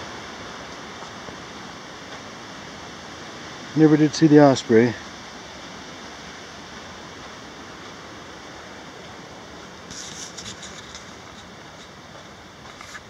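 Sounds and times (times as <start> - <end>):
footsteps on dirt trail: 0.0 - 2.5, 6.9 - 13.0
creek rushing: 0.0 - 13.0.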